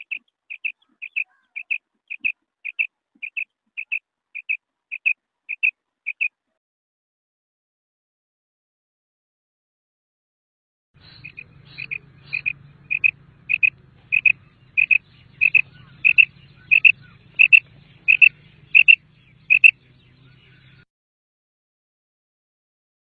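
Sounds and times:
quail calling: 0.0 - 6.4, 11.0 - 20.8.

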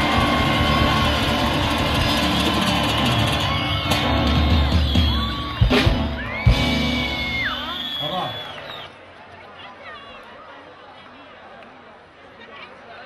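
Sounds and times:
live band with acoustic guitars: 0.0 - 8.4.

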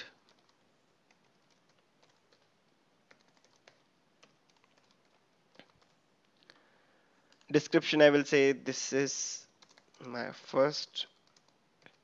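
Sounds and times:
keyboard typing: 0.0 - 6.0, 9.6 - 10.2, 11.1 - 12.0.

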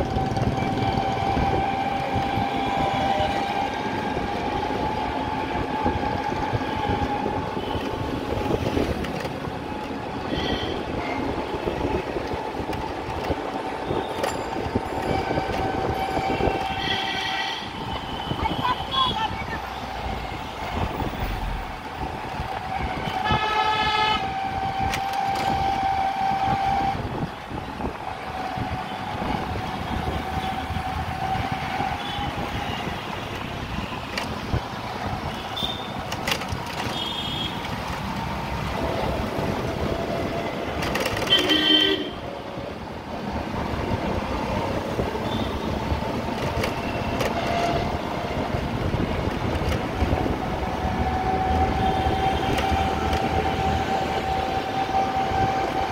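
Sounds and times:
vehicle road noise with whine: 0.0 - 55.9
vehicle horn honking: 16.1 - 19.2, 23.0 - 24.3, 41.2 - 42.2.

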